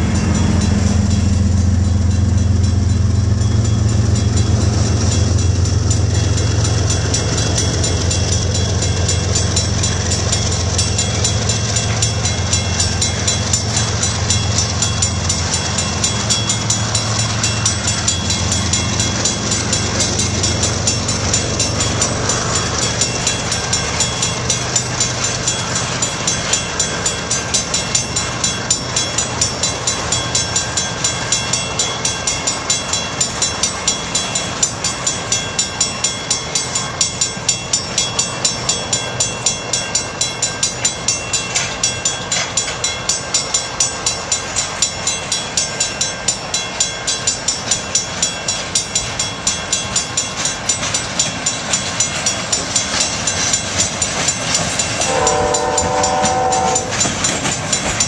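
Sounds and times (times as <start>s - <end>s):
freight cars rolling rumble: 0.0s - 35.4s
crossing bell ringing: 0.0s - 58.0s.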